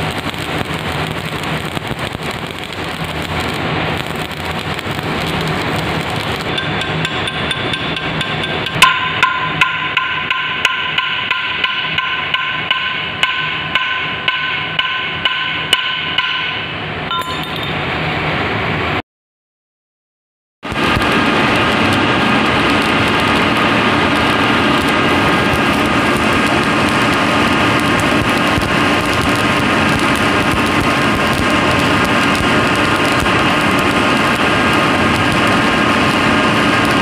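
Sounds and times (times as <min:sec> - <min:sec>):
arc welding crackling: 0:00.0 - 0:16.6, 0:20.6 - 0:37.0
hammer striking ringing steel: 0:06.5 - 0:17.8.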